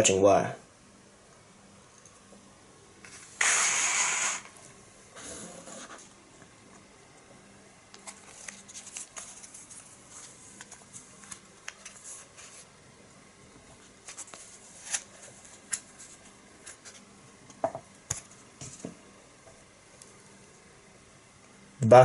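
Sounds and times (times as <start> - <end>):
plastic wrapper rustling: 8.0 - 12.3.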